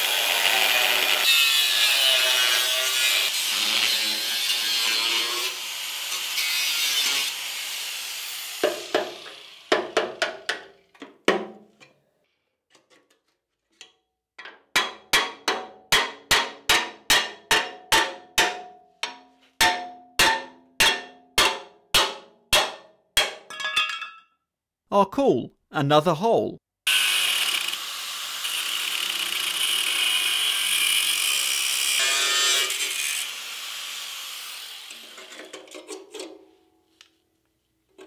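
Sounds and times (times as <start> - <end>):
angle grinder on steel: 0.0 - 9.9, 26.9 - 36.2.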